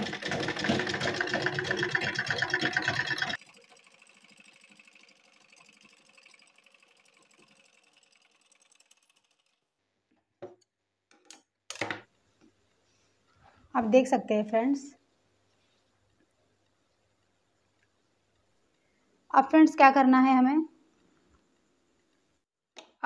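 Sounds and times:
sewing machine stitching: 0:00.0 - 0:09.7.

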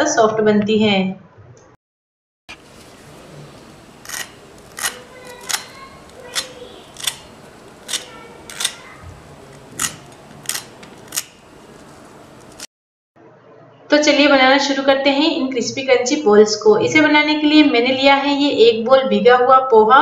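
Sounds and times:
fork crunching fried crust: 0:02.5 - 0:12.6.

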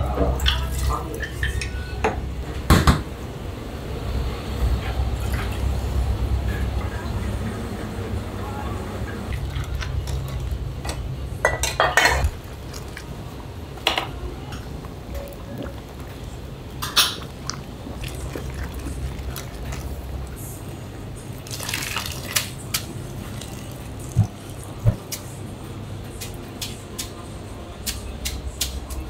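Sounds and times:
boiler low rumble: 0:02.2 - 0:11.4, 0:12.2 - 0:21.5
metal and dishes clinking: 0:09.3 - 0:13.1
water splashing: 0:12.3 - 0:13.5, 0:14.7 - 0:25.2.

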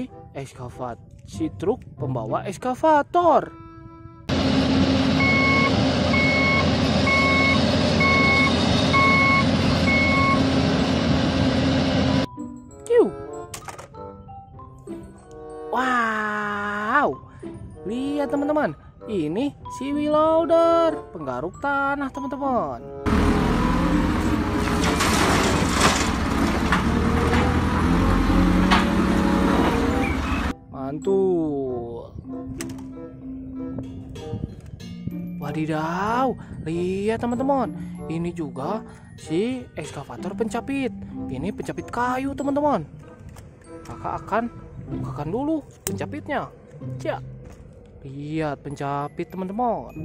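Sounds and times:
diesel engine running: 0:04.3 - 0:12.3, 0:23.1 - 0:30.5
back-up alarm beeping: 0:05.1 - 0:10.7.

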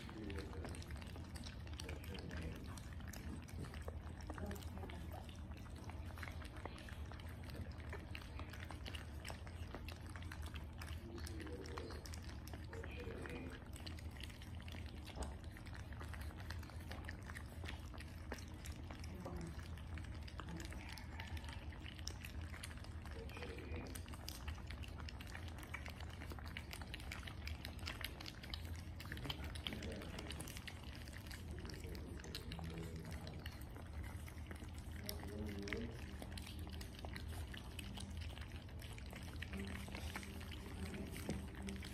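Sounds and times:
low steady hum: 0:00.0 - 0:41.9
puppies smacking and chewing: 0:00.0 - 0:41.9.

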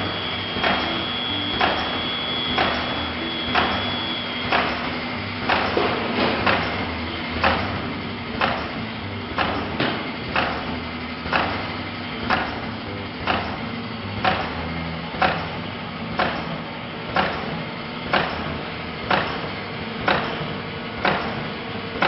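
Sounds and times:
faint high whine: 0:00.0 - 0:04.5
motor hum: 0:00.0 - 0:22.0
pneumatic press clacking: 0:00.0 - 0:22.0.

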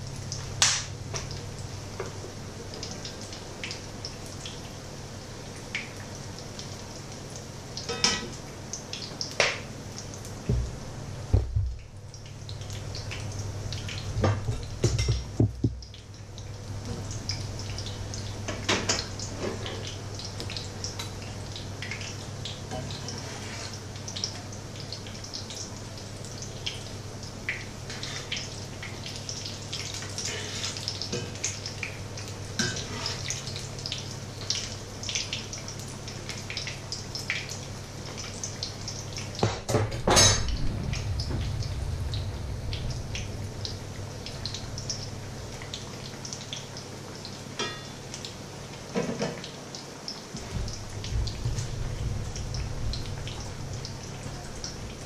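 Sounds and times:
fritters sizzling in hot oil: 0:00.0 - 0:55.0
metal utensils clinking on pan: 0:07.9 - 0:08.4
steady low hum: 0:40.0 - 0:47.4, 0:50.5 - 0:55.0.

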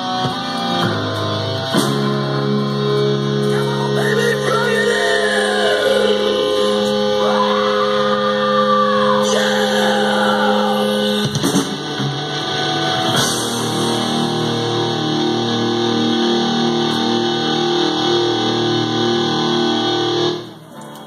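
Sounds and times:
drum kit: 0:00.0 - 0:03.2, 0:11.0 - 0:15.3
electric guitar riff: 0:00.0 - 0:21.0.

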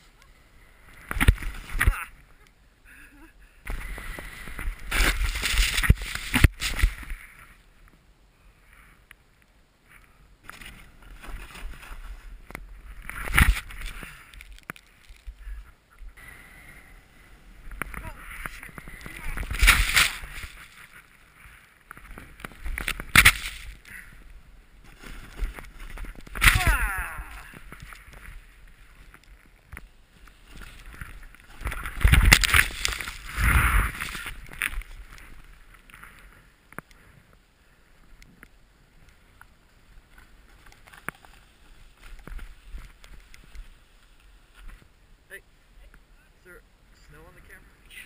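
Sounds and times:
snowboard scraping on turns: 0:03.7 - 0:07.6, 0:10.5 - 0:14.5, 0:30.1 - 0:36.1
snowboard sliding through snow: 0:03.7 - 0:07.7, 0:10.6 - 0:14.5, 0:15.4 - 0:36.4.

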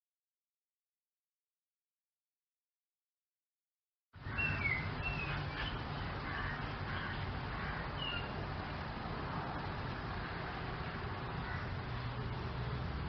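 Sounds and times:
bird chirps: 0:04.2 - 0:07.2, 0:07.9 - 0:08.4
low outdoor rumble: 0:04.2 - 0:13.0.

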